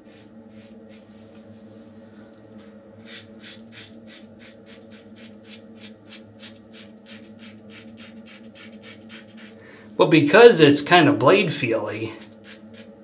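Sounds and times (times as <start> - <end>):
razor scraping stubble: 0.0 - 1.1, 3.0 - 9.6, 12.0 - 13.0
faint low hum: 0.0 - 13.0.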